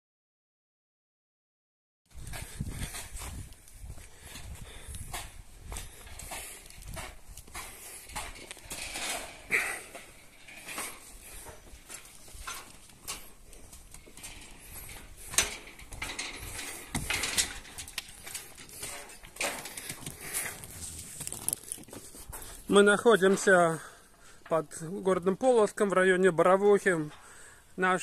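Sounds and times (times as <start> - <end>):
footsteps on wooden walkway: 2.1 - 24.5
clunks and clatter of boat gear: 4.4 - 22.4.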